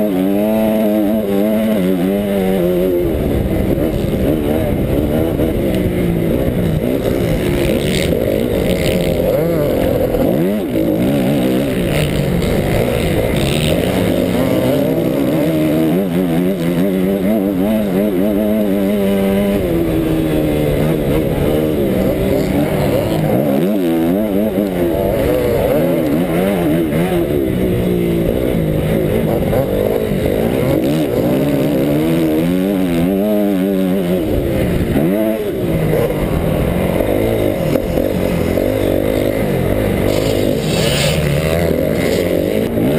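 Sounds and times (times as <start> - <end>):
motocross bike engine revving: 0.0 - 42.9
wind noise on microphone: 2.2 - 13.7.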